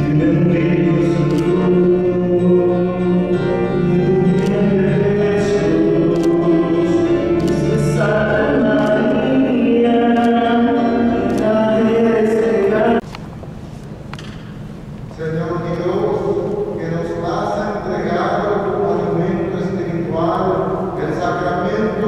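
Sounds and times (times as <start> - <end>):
choir singing held chords: 0.0 - 13.0.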